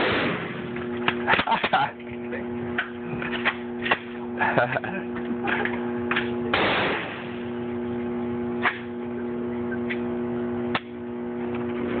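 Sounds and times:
shotgun shots: 0.0s - 1.7s, 6.5s - 7.5s
steady hum: 0.0s - 12.0s.

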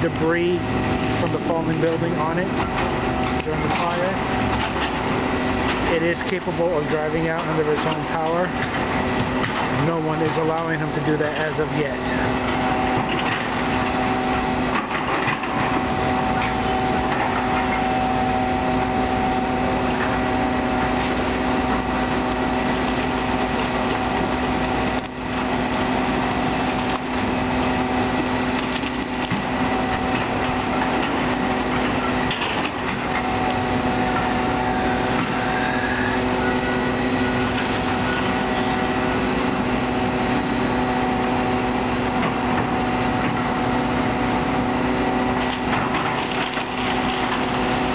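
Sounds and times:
excavator diesel engine running: 0.0s - 47.9s
wood cracking and splintering: 20.8s - 33.6s, 45.3s - 47.9s.

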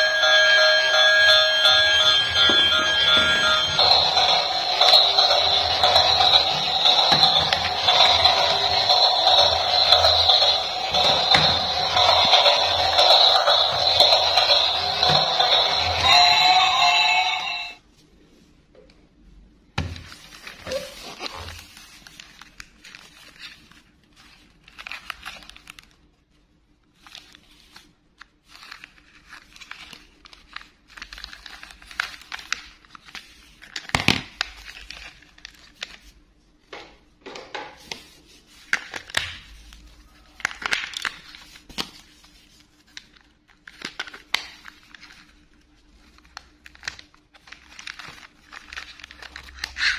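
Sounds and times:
plastic toy handling rustling: 2.7s - 16.1s, 26.9s - 36.2s, 37.8s - 49.9s.

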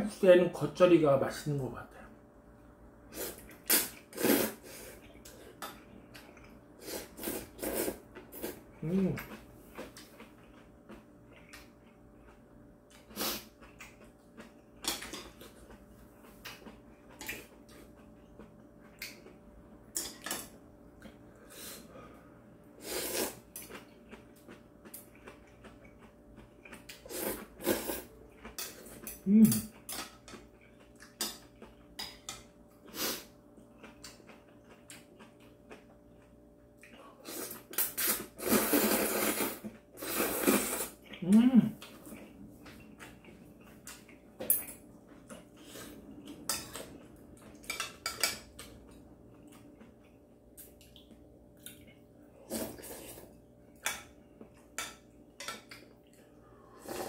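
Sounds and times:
low hum of voice: 8.7s - 9.4s, 29.2s - 29.8s, 41.1s - 42.2s
noodle slurping: 37.2s - 41.0s, 56.7s - 57.0s.

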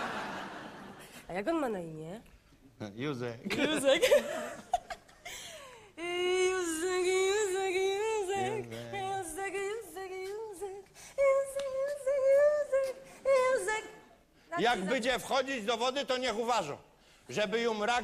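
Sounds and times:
woman singing with vibrato: 6.0s - 15.0s.

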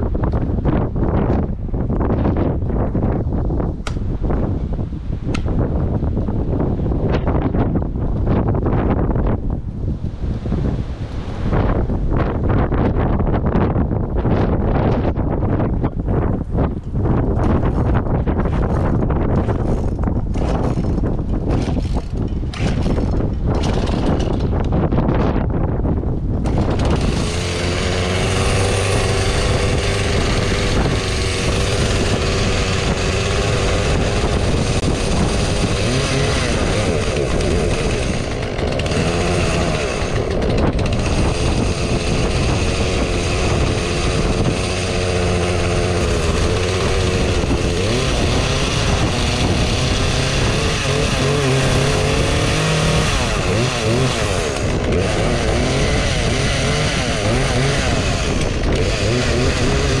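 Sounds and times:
chainsaw engine revving: 18.5s - 24.6s, 26.4s - 60.0s.

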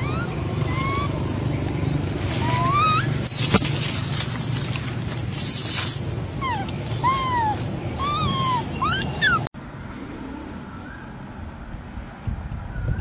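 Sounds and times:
monkey coo calls: 0.0s - 1.5s, 2.3s - 9.5s.

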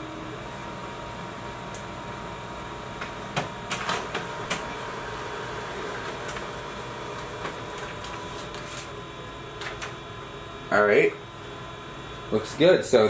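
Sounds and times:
laser printer whirring: 0.0s - 13.0s
printer clicks: 3.0s - 4.7s.

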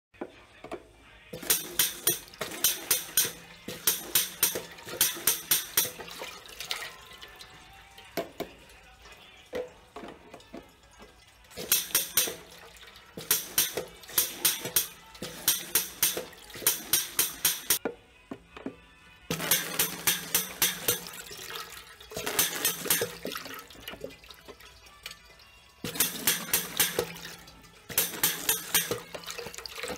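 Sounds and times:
water jetting and splashing: 19.3s - 24.7s.

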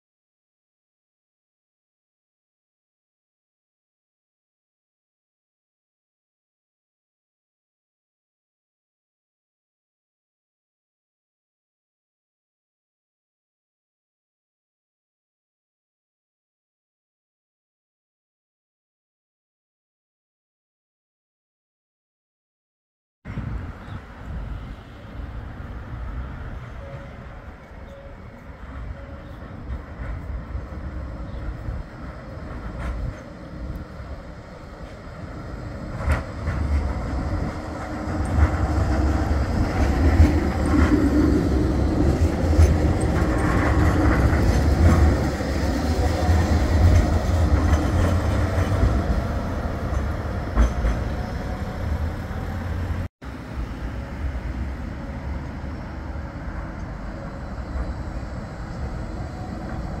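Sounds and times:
tram approaching quietly: 23.3s - 60.0s
tram rumbling on rails: 23.3s - 60.0s.

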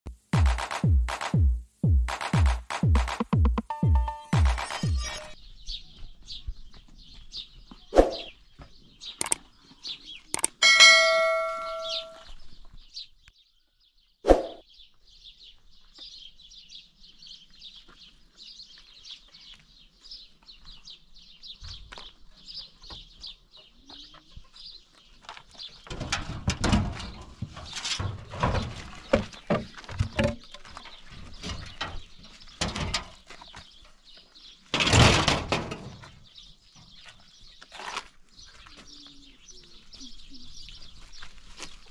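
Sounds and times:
high wildlife chirping: 2.0s - 25.9s
bell-like chime: 3.7s - 5.4s, 10.6s - 12.2s.

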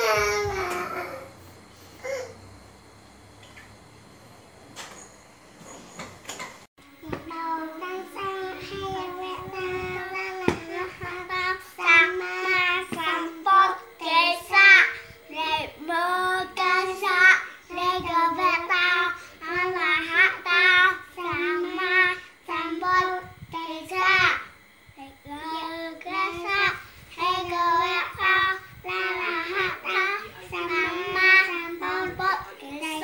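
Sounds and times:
children chanting a prayer: 7.3s - 33.0s.

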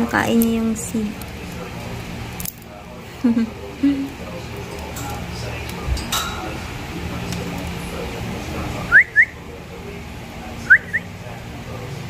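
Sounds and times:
cockatiel whistling: 8.9s - 9.4s, 10.7s - 11.1s.

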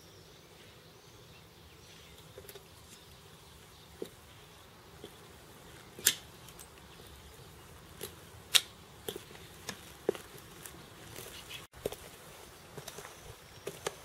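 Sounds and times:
walking stick tapping: 4.9s - 12.1s.

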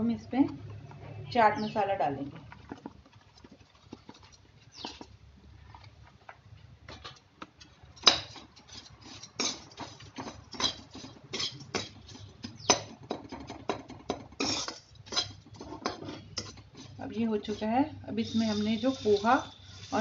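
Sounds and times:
metal spoon scraping metal pan: 8.0s - 12.9s, 14.1s - 20.0s.

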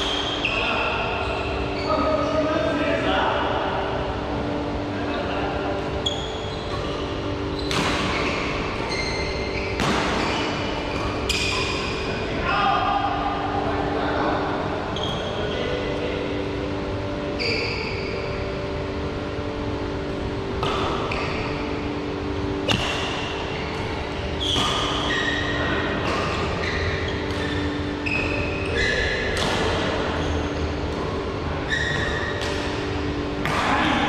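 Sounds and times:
low hum: 0.0s - 34.0s
sneakers squeaking on court: 6.0s - 12.1s, 22.7s - 31.1s, 31.7s - 32.8s
rackets striking shuttlecock: 7.6s - 8.8s, 20.6s - 21.4s, 22.6s - 25.1s, 29.2s - 30.2s, 31.9s - 33.8s.

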